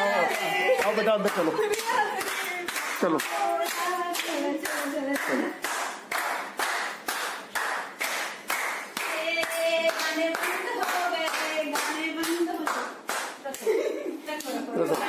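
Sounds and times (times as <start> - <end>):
voices singing: 0.0 - 5.5
people clapping in rhythm: 0.0 - 13.7, 14.4 - 15.0.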